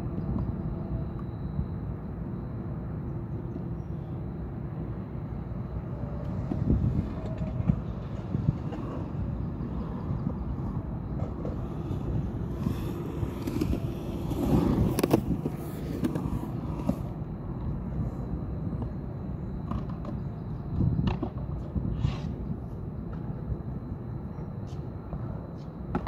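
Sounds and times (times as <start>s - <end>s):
skateboard wheels rolling on concrete: 0.0s - 26.0s
sharp skateboard clicks: 11.1s - 17.1s.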